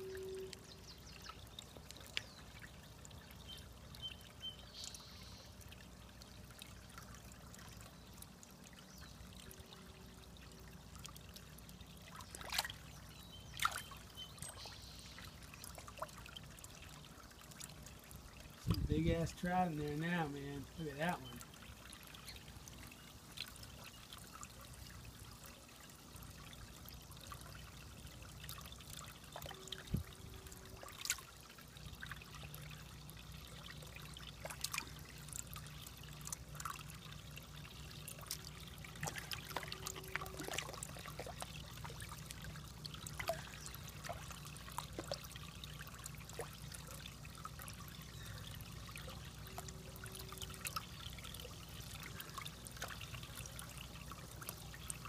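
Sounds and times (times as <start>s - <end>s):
water trickling: 0.0s - 55.0s.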